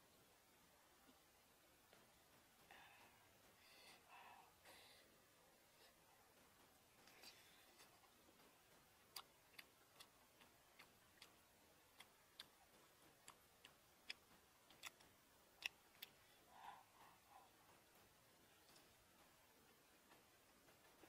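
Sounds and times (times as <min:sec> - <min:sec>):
person chewing with wet clicks: 0:06.5 - 0:20.3.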